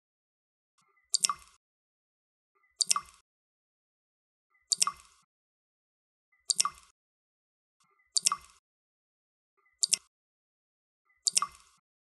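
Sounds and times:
water drops plopping: 1.2s - 1.6s, 2.8s - 3.2s, 6.5s - 6.9s, 9.8s - 10.1s, 11.3s - 11.7s.

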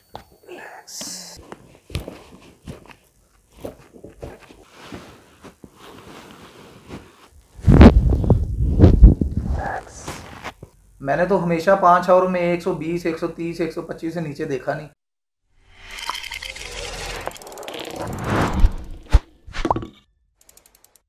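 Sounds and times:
rustling: 1.4s - 9.3s.

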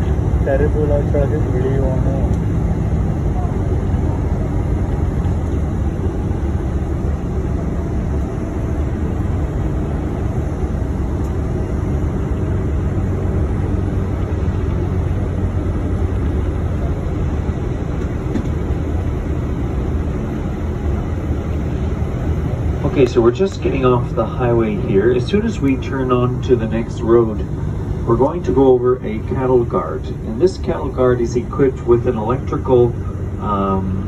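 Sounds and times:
bus engine and road noise drone: 0.0s - 34.0s.

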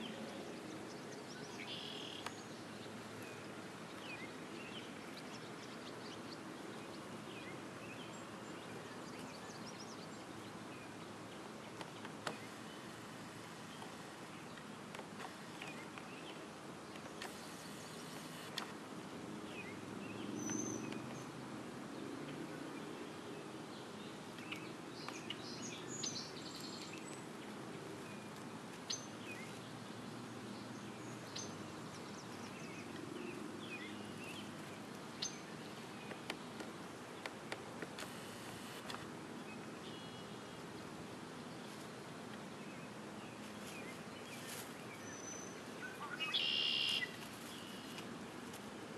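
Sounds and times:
low outdoor hiss: 0.0s - 48.9s
high bird chirps: 45.1s - 47.9s.

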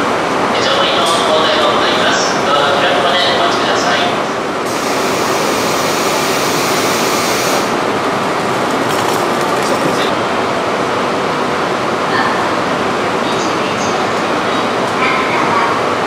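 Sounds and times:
electric train running noise: 4.6s - 10.4s.

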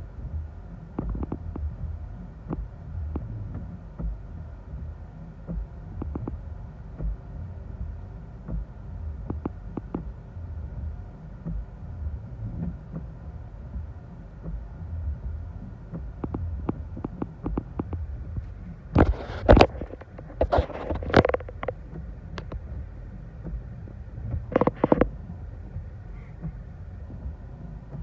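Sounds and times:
storm wind buffeting car: 0.0s - 28.0s.

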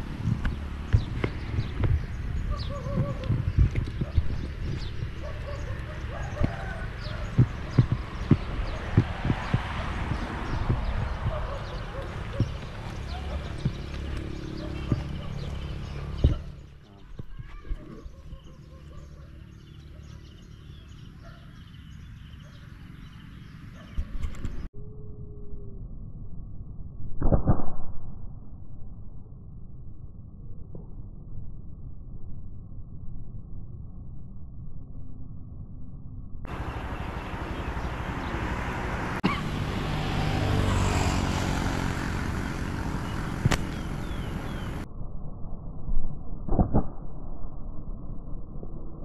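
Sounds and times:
vehicle engine passing by: 0.0s - 16.8s, 36.5s - 44.9s
steady low rumble: 0.0s - 19.8s, 25.5s - 49.0s
small birds chirping: 0.0s - 24.7s, 36.5s - 44.9s
sharp clicks: 43.4s - 43.9s.

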